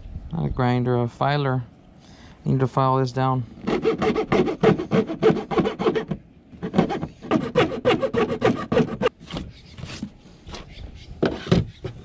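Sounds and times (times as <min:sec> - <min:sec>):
hand file rasping on plastic: 0:03.6 - 0:09.1
rubs and knocks: 0:03.6 - 0:12.0.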